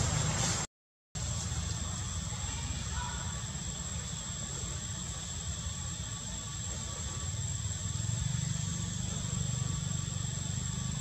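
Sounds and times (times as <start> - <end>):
low outdoor rumble: 0.0 - 11.0
thin high-pitched whine: 1.2 - 11.0.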